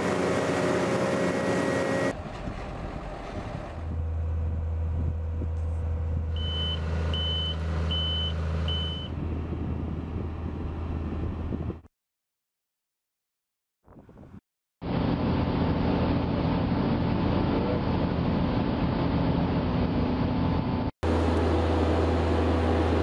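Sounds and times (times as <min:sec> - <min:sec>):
loud machine noise: 0:00.0 - 0:02.4, 0:14.8 - 0:23.0
heavy machinery engine drone: 0:00.0 - 0:11.8, 0:14.8 - 0:23.0
reversing alarm beeping: 0:06.4 - 0:09.1.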